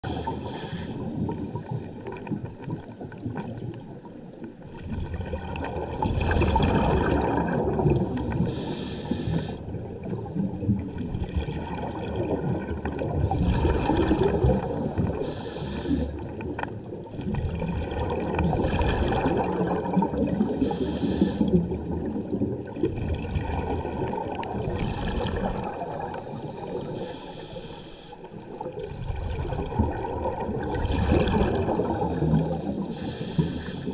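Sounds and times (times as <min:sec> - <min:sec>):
diver breathing through regulator: 0:00.0 - 0:01.2, 0:07.8 - 0:09.6, 0:14.0 - 0:16.2, 0:20.3 - 0:21.7, 0:25.7 - 0:28.3, 0:31.6 - 0:33.9
exhaled bubbles rushing: 0:01.0 - 0:08.6, 0:09.7 - 0:15.3, 0:16.1 - 0:26.9, 0:28.3 - 0:33.0.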